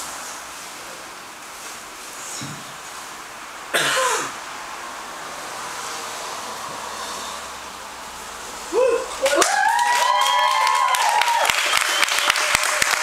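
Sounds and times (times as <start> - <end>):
person cheering whoo: 8.7 - 13.0
audience clapping: 9.2 - 13.0.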